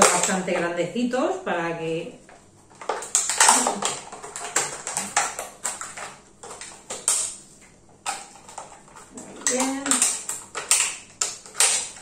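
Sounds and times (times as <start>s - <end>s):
plastic crackling: 0.0s - 0.6s, 2.2s - 12.0s
scissors snipping plastic bottle: 2.8s - 7.4s, 9.4s - 12.0s.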